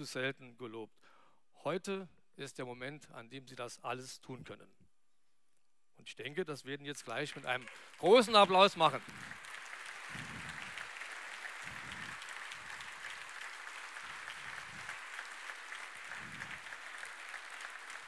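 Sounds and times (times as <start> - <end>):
audience applauding: 7.2 - 18.0.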